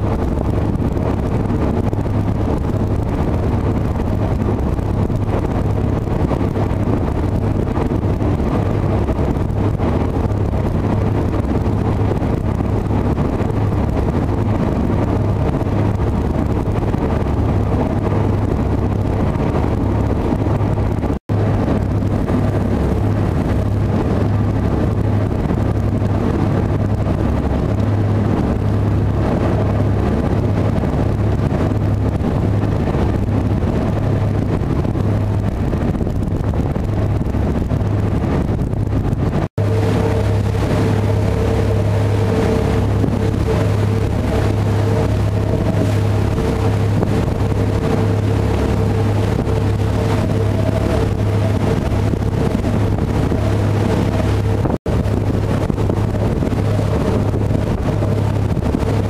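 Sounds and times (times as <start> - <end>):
rushing water: 0.0 - 59.0
wind on microphone: 0.0 - 59.0
ferry engines droning: 39.6 - 59.0.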